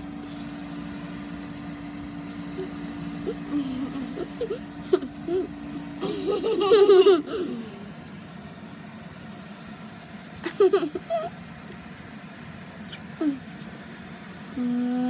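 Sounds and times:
person giggling: 2.6s - 7.8s, 10.4s - 11.3s.

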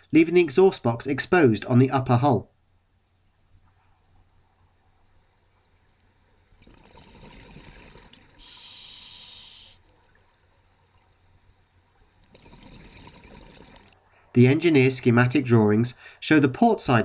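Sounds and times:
diver bubbling exhalation: 6.6s - 9.5s, 12.3s - 13.9s
regulator inhalation hiss: 8.4s - 9.8s.

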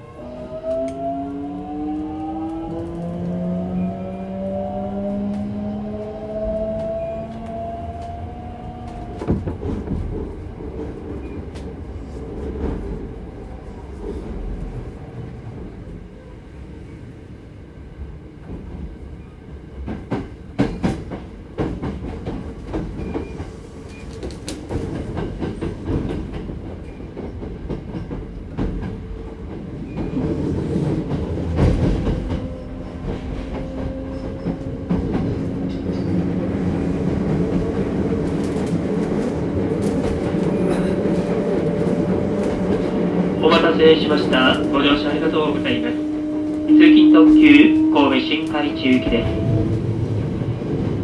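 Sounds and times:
train wheels clacking over joints: 19.8s - 36.5s
train inverter whine rising: 43.4s - 50.7s.

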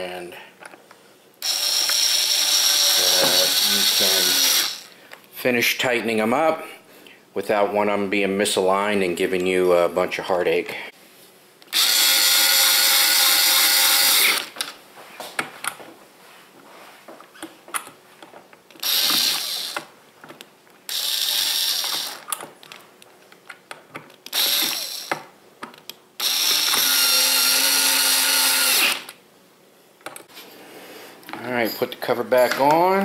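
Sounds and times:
drill clicks: 1.4s - 4.9s, 11.7s - 14.7s, 18.8s - 19.9s, 20.9s - 22.5s, 24.2s - 25.2s, 25.8s - 29.2s
power drill driving screws: 1.4s - 4.9s, 11.7s - 14.7s, 18.8s - 19.9s, 20.9s - 22.3s, 24.3s - 25.2s, 26.2s - 29.2s.

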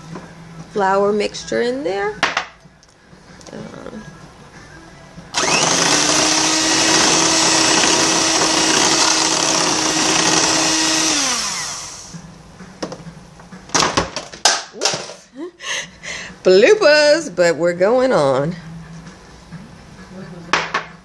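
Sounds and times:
electric hand mixer whirring: 5.4s - 12.2s.

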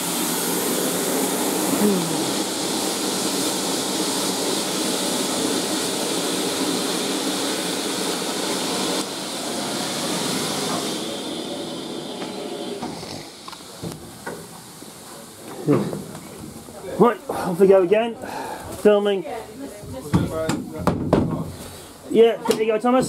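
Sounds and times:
steam hissing from locomotive: 0.0s - 16.2s, 21.4s - 22.2s.

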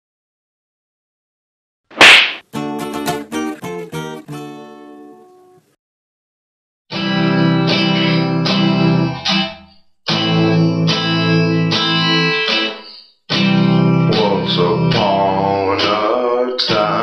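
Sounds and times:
strummed guitar chords: 2.5s - 5.4s, 6.9s - 17.0s.

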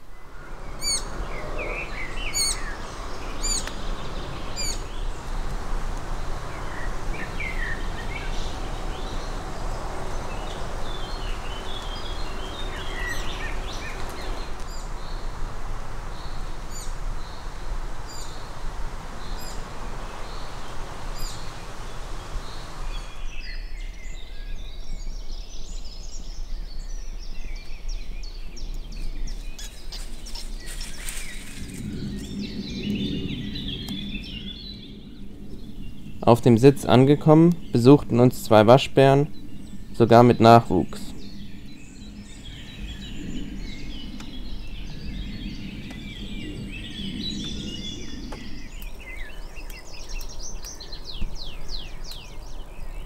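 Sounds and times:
wild birds singing and calling: 0.0s - 53.0s
steady background noise: 29.5s - 53.0s.

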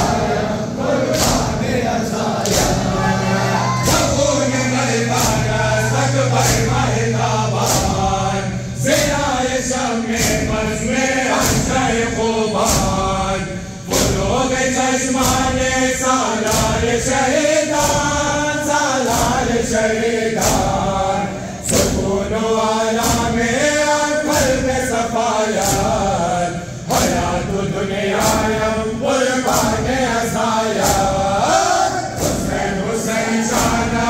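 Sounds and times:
low steady hum: 0.0s - 14.5s
crowd beating chests: 0.0s - 34.0s
men chanting into microphones: 0.0s - 34.0s.

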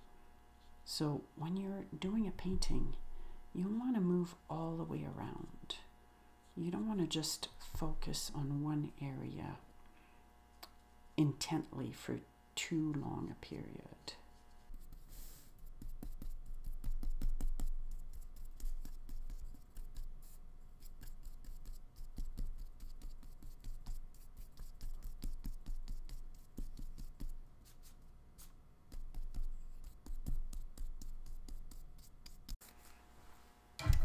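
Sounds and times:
paintbrush scraping on paper: 14.4s - 33.1s.

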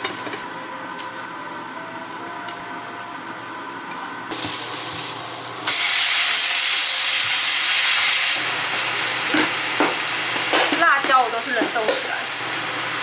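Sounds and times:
greens sizzling in hot oil: 4.3s - 13.0s.

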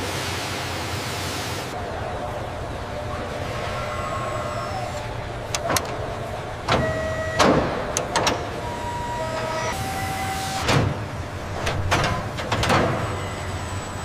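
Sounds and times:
machinery hum: 0.0s - 14.0s
mechanical clicks and clanks: 4.3s - 9.8s, 10.6s - 14.0s.

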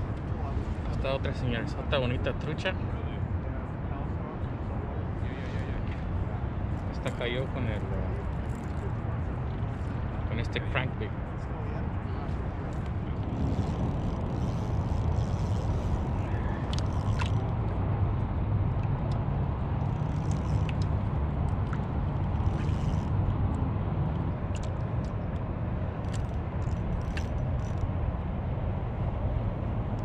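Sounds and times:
low outdoor rumble: 0.0s - 30.0s
faint clicks and ticks: 19.8s - 27.9s.

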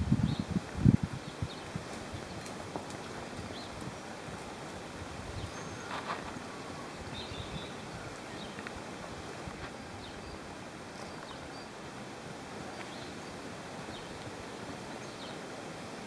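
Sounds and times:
wind on microphone: 0.0s - 11.6s.

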